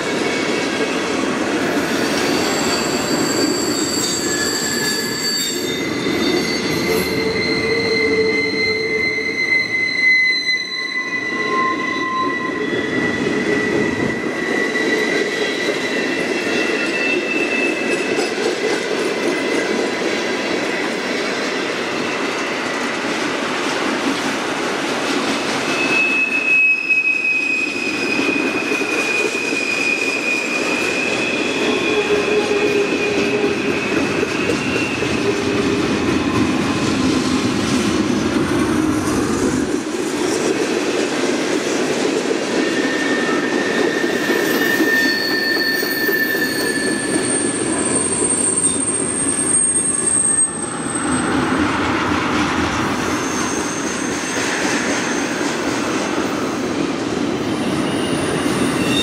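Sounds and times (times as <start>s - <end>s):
train wheels rumbling on rail: 0.0s - 59.0s
high-pitched wheel squeals: 1.7s - 18.4s, 25.6s - 35.6s, 42.6s - 51.6s, 52.9s - 56.2s, 57.5s - 59.0s.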